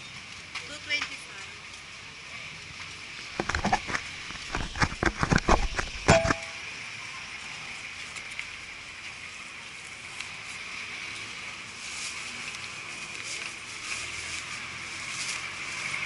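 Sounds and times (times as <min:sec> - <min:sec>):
market ambience hiss and hum: 0:00.0 - 0:16.0
faint clicks and knocks: 0:02.8 - 0:06.6.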